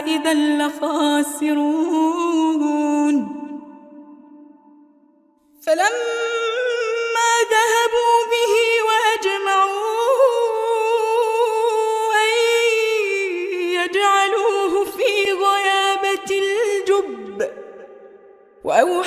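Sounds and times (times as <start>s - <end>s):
woman chanting melodically: 0.0s - 4.6s, 5.6s - 19.0s.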